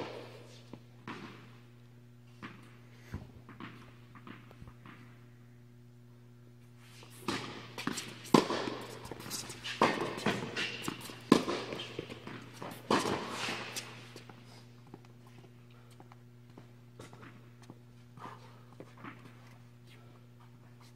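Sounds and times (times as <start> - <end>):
steady low hum: 0.0 - 20.9
shoes scuffing and running: 7.0 - 19.6
tennis ball hits and bounces: 7.2 - 14.3.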